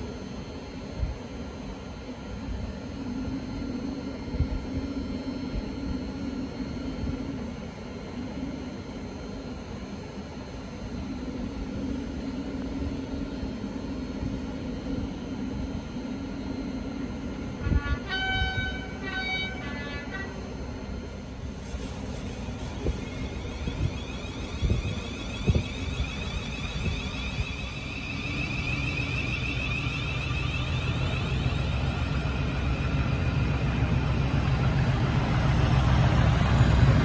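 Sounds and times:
diesel locomotive engine droning: 0.0 - 37.0
locomotive horn: 17.6 - 20.6.

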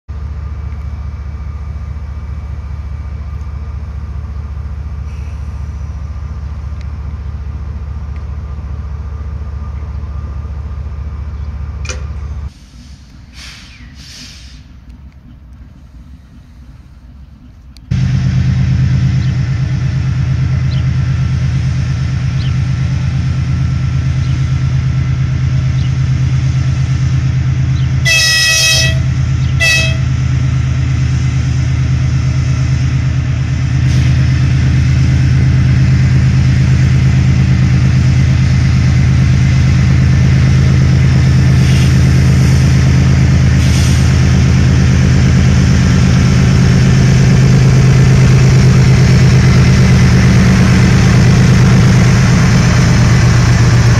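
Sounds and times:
locomotive diesel engine drone: 0.1 - 53.9
locomotive horn blasts: 28.0 - 30.2.

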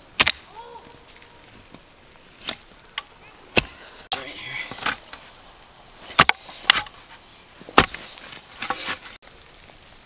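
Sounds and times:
post-hole digger striking rocky soil: 0.0 - 0.5, 2.4 - 2.7, 3.5 - 5.2, 6.1 - 7.0, 7.7 - 9.2
dirt scraping: 0.0 - 10.0.

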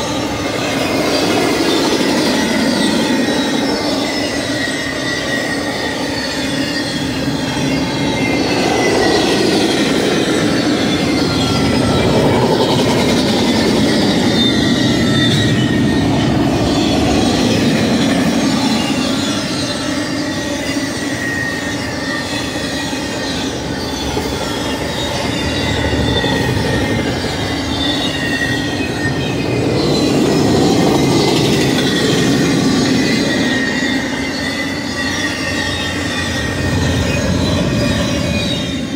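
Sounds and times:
high-pitched wheel squeal: 0.0 - 38.9
train wheels rumbling on rail: 0.0 - 38.9.

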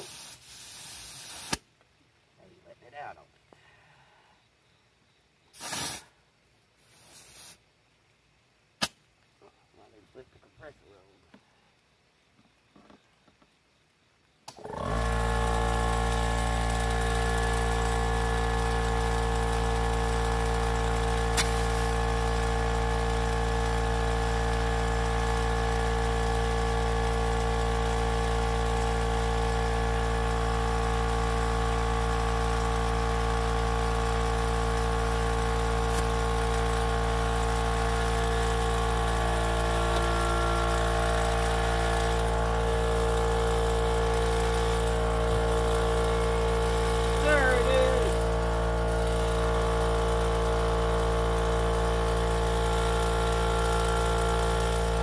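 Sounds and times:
air compressor running: 0.0 - 1.6, 5.6 - 6.1, 14.5 - 55.0.

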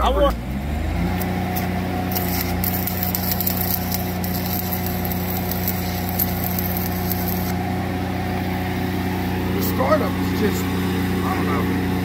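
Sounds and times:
diesel welder engine running: 0.0 - 12.0
welding arc crackling: 1.1 - 7.8.

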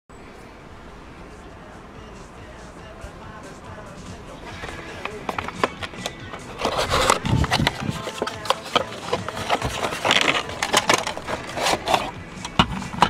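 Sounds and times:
plastic rustling: 4.4 - 13.0
cardboard flaps scraping: 6.4 - 13.0.

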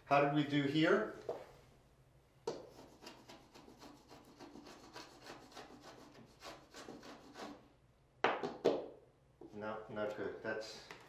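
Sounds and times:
metal scraper scraping wallpaper: 2.7 - 7.6.

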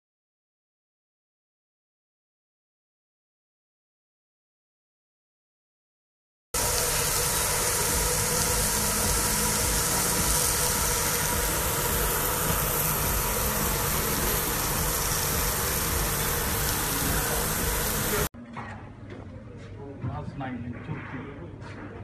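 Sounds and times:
meat sizzling on a grill: 6.6 - 18.3
faint machine hum: 6.6 - 20.6.

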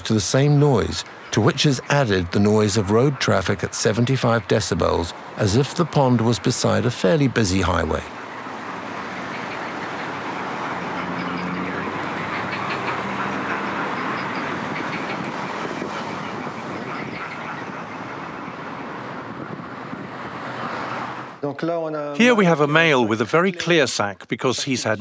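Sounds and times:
pond sounds: 0.0 - 18.9
road traffic noise over loudspeaker: 0.0 - 21.6, 22.2 - 25.0.

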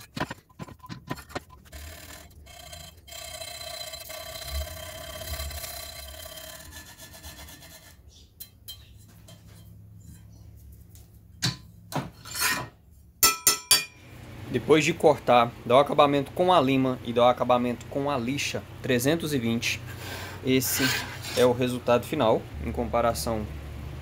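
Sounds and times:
sandpaper rasping on steel: 3.3 - 8.2, 19.9 - 21.6.

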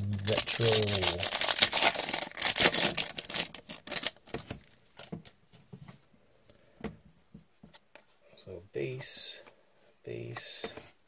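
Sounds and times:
plastic wrapper tearing and crinkling: 0.0 - 5.2.

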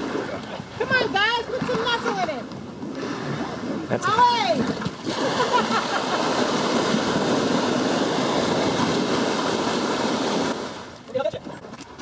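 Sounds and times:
water pouring and splashing: 1.6 - 12.0.

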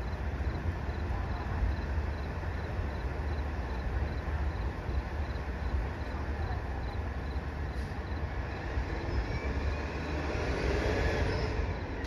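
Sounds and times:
insect chirping: 1.7 - 5.8.

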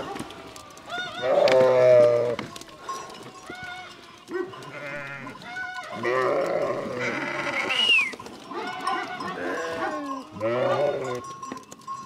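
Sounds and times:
sheep bleating: 0.9 - 2.7, 4.6 - 11.3.

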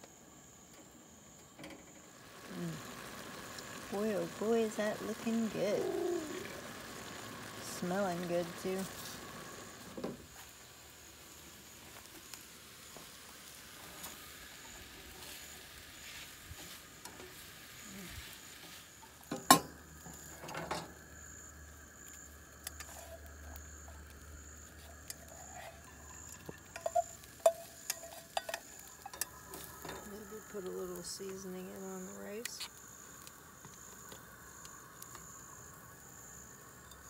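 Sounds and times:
food sizzling in a pan: 2.0 - 37.0
spatula scraping a skillet: 24.8 - 30.0.

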